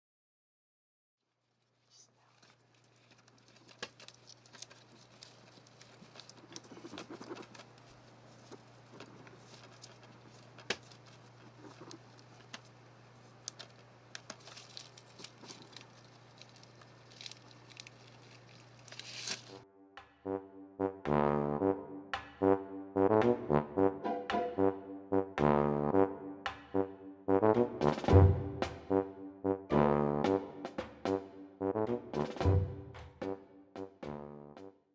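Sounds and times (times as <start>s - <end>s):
claws scrabbling on plastic: 1.6s - 19.6s
steady low hum: 2.4s - 19.6s.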